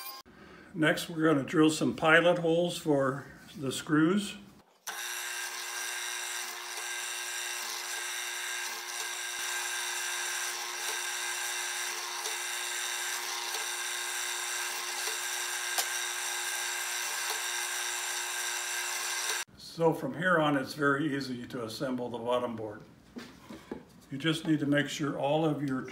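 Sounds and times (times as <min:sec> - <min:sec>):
drill press drilling wood: 0:04.8 - 0:19.5.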